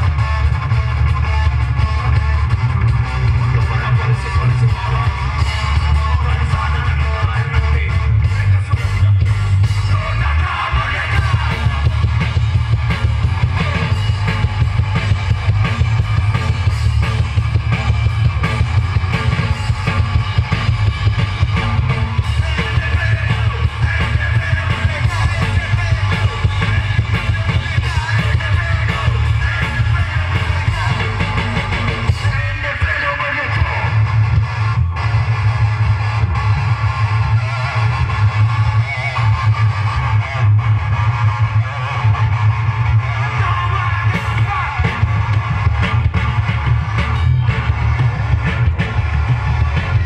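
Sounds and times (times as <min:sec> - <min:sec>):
drums and crashing cymbals: 0:00.0 - 0:50.0
heavy rock band playing: 0:00.0 - 0:50.0
vocalist shouting and singing: 0:03.4 - 0:12.2, 0:22.0 - 0:34.1, 0:43.0 - 0:45.3.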